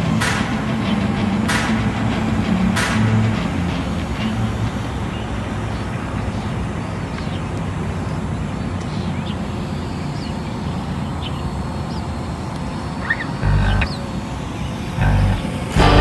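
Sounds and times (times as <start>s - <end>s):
model plane engine droning: 0.0s - 16.0s
faint bird chirps: 8.9s - 15.4s.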